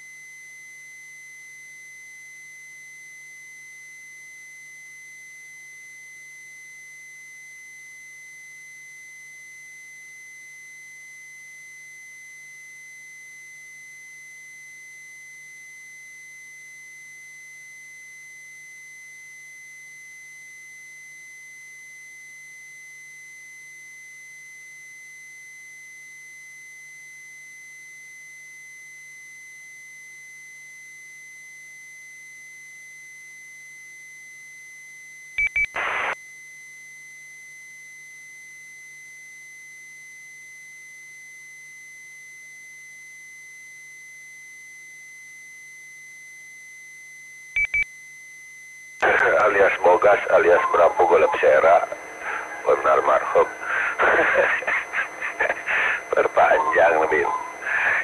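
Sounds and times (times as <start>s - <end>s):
faint low hum: 49.0s - 58.0s.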